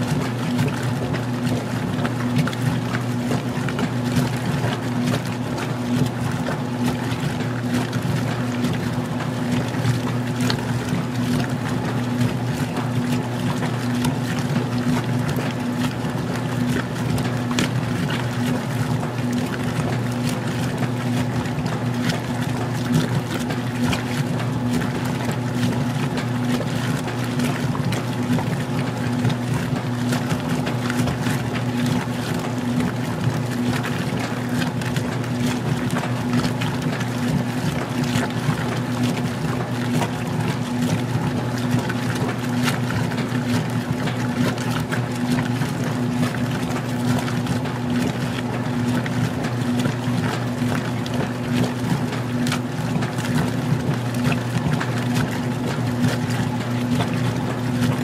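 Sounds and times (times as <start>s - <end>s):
washer motor humming: 0.0s - 58.0s
water sloshing in tub: 0.0s - 58.0s.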